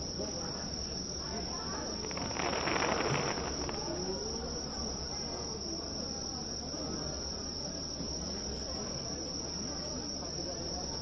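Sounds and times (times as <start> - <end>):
crickets and insects chirping: 0.0 - 11.0
short burst of noise: 2.0 - 4.1.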